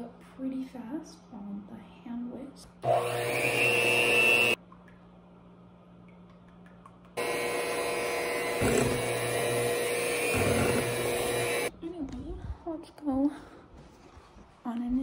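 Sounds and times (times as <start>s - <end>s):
electric hand mixer running: 2.8s - 4.6s, 7.2s - 11.7s.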